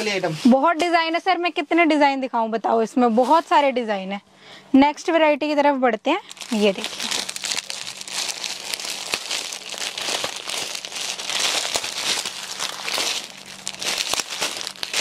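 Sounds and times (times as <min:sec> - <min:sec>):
packaging crinkling: 0:06.2 - 0:15.0.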